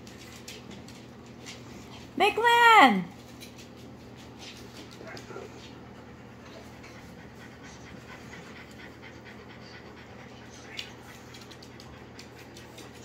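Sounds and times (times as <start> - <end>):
dog panting: 3.4 - 13.0.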